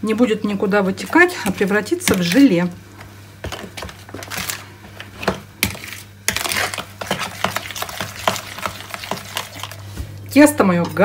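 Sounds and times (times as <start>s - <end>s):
spoon scraping a bowl: 5.2s - 9.8s
steady low hum: 8.6s - 11.0s.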